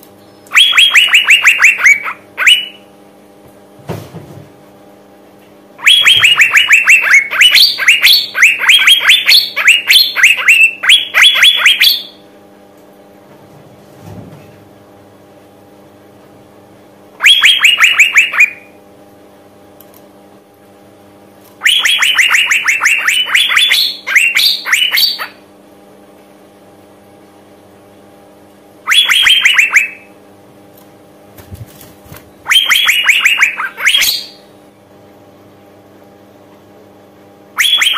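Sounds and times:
bird calling in fast sharp notes: 0.2s - 2.9s, 5.8s - 12.2s, 17.2s - 18.8s, 21.6s - 25.4s, 28.8s - 30.1s, 32.4s - 34.5s, 37.6s - 37.9s.

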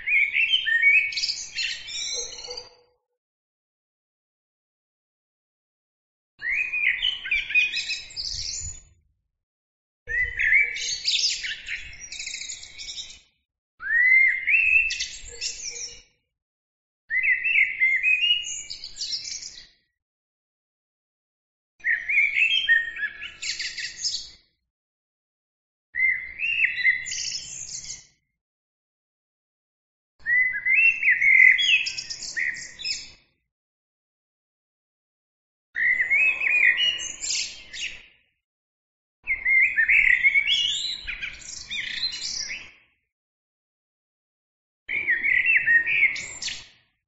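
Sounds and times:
blackbird singing: 0.0s - 2.8s, 6.4s - 8.9s, 10.1s - 13.2s, 13.8s - 16.0s, 17.1s - 19.7s, 21.8s - 24.4s, 26.0s - 28.1s, 30.2s - 33.2s, 35.8s - 38.0s, 39.3s - 42.7s, 44.9s - 46.7s.

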